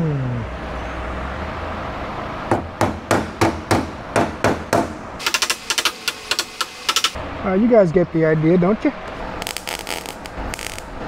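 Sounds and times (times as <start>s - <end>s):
fast crackle of short clicks: 5.2s - 7.2s, 9.4s - 11.0s.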